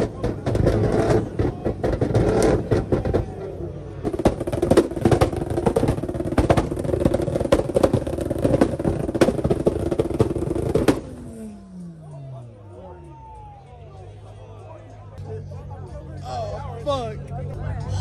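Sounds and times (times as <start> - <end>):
exhaust popping and crackling: 0.0 - 11.9
car engine revving high: 0.0 - 12.6.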